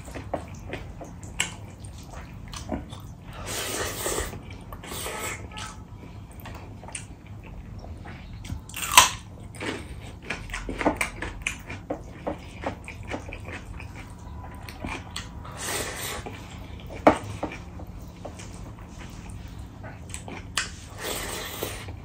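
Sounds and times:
chewing and wet mouth smacks: 0.1s - 3.2s, 9.8s - 15.4s.

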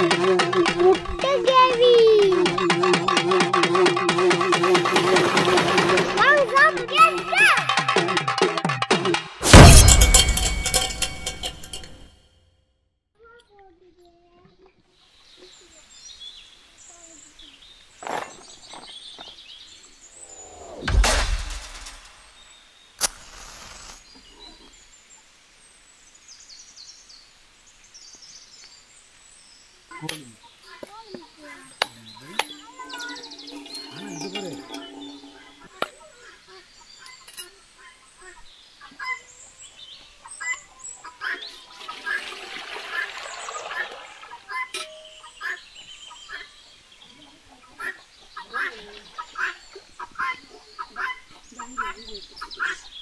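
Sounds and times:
small birds chirping: 0.0s - 3.1s, 13.2s - 20.8s, 22.2s - 42.1s, 43.0s - 53.0s
sharp knock: 9.4s - 11.9s.

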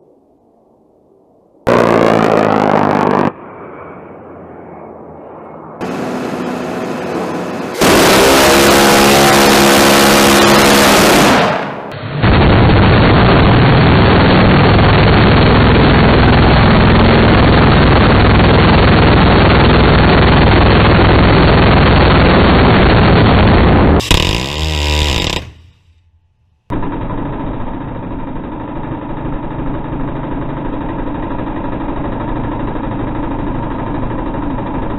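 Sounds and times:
gatling cannon firing bursts: 7.7s - 11.9s.

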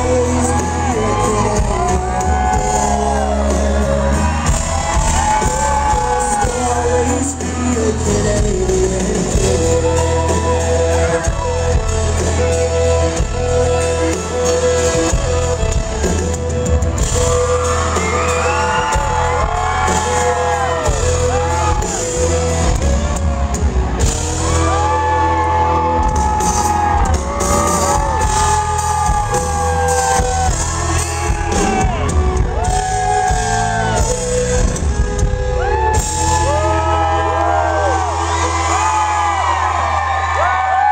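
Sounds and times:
crowd shouts: 0.0s - 9.0s, 9.6s - 40.9s
person singing: 0.0s - 16.3s
live country band playing: 0.0s - 40.9s.

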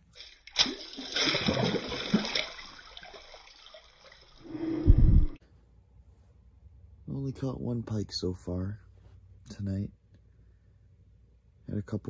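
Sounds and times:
water splashing and sloshing: 0.0s - 5.4s.

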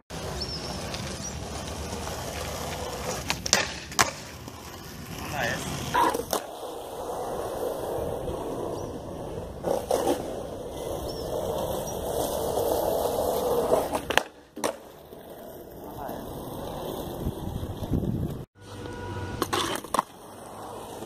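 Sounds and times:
skateboard wheels rolling on concrete: 0.1s - 21.0s
skateboard pop crack: 3.2s - 4.3s, 13.9s - 14.9s.

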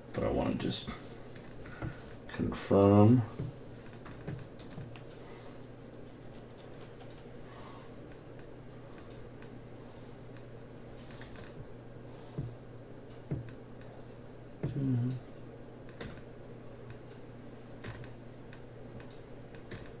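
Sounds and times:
steady low hum: 0.0s - 20.0s
laptop keyboard typing: 3.8s - 5.0s, 5.8s - 7.4s, 15.9s - 16.2s, 17.8s - 18.2s, 19.0s - 20.0s.

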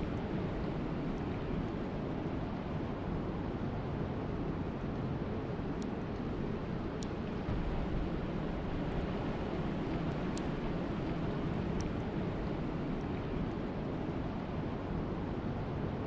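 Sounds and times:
wind and rain rushing: 6.2s - 16.0s
faint sharp ticks: 7.0s - 7.2s, 10.1s - 10.6s.

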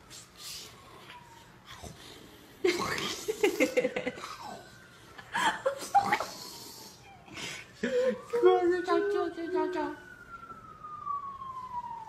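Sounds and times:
person laughing and giggling: 2.6s - 4.6s, 5.2s - 6.4s.

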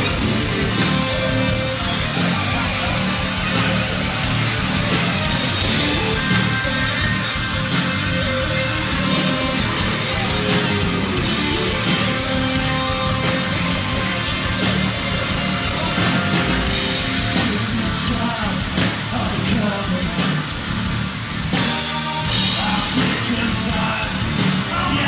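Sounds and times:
bass guitar: 0.0s - 25.0s
distorted electric guitar: 0.0s - 25.0s
drums: 0.0s - 25.0s
man singing into microphone: 17.4s - 20.6s, 22.0s - 25.0s.

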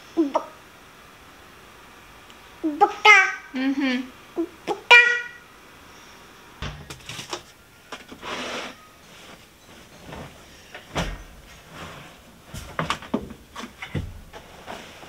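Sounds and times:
light knocks and clatter: 12.5s - 14.6s.

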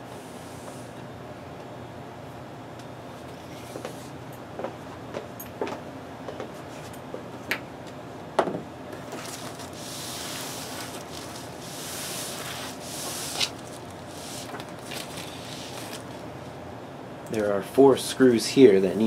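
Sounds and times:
rubbing and sliding: 9.1s - 16.2s.

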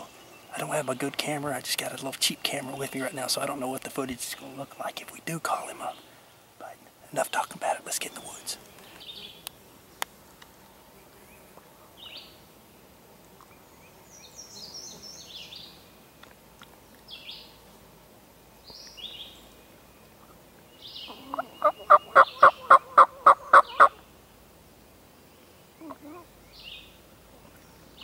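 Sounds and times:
songbirds chirping: 0.0s - 28.0s
turkey call yelps: 21.1s - 24.0s.

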